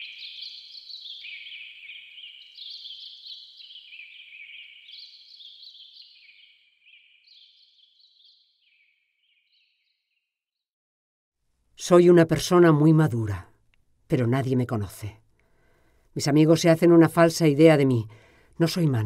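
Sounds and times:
high twittering chirps: 0:00.0 - 0:09.8.

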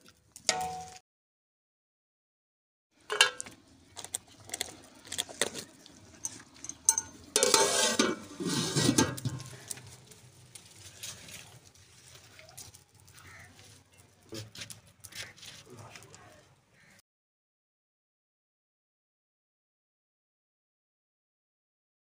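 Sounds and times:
metal pot clicks and knocks: 0:00.5 - 0:01.0, 0:03.1 - 0:03.5, 0:06.2 - 0:09.9
metal lid clattering onto pot: 0:03.1 - 0:03.4, 0:06.6 - 0:09.6.

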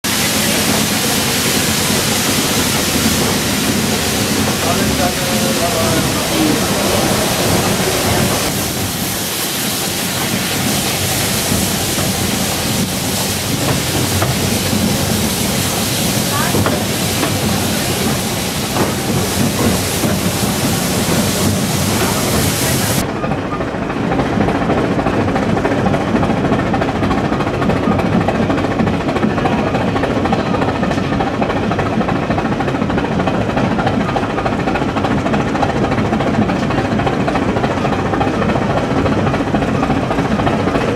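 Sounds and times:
train clatter and rumble: 0:00.0 - 0:40.9
steam hiss: 0:00.1 - 0:23.0.

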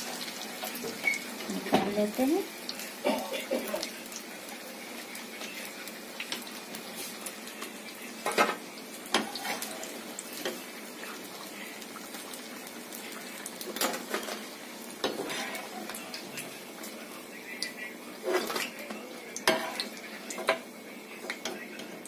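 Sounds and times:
slices sizzling in hot oil: 0:00.0 - 0:22.0
metal tongs clinking on pan: 0:18.3 - 0:20.6.

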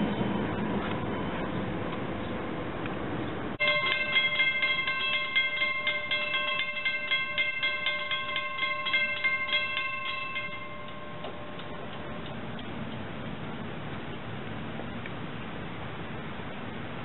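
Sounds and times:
railroad crossing bell ringing: 0:03.6 - 0:12.5.

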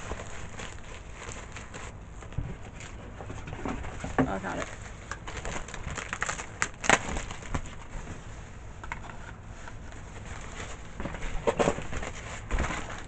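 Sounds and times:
bubble wrap crackling: 0:00.0 - 0:03.0, 0:04.3 - 0:08.3, 0:09.5 - 0:11.1.

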